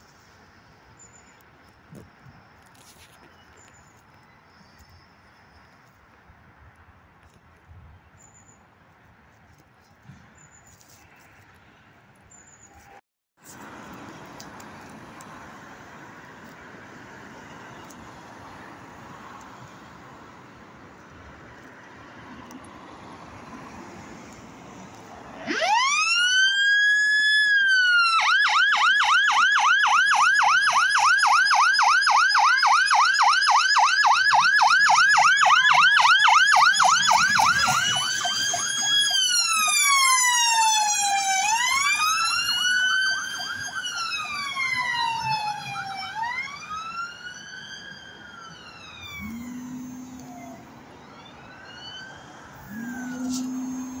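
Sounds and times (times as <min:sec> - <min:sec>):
fire engine siren wailing: 0:25.0 - 0:54.0
short low horn blasts: 0:49.1 - 0:50.7, 0:52.6 - 0:54.0.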